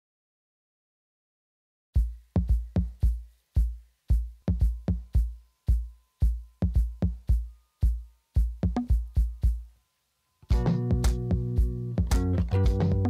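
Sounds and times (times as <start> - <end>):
electronic music with kick drum: 2.0 - 9.8, 10.5 - 13.0.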